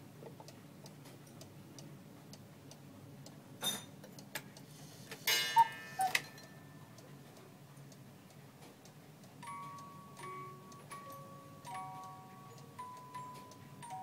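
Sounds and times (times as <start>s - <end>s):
clock ticking: 5.6s - 14.0s.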